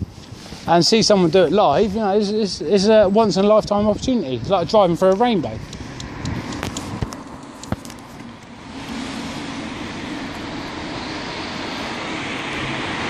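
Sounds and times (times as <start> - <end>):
sharp clicks: 5.1 - 8.5
car passing: 5.3 - 13.0.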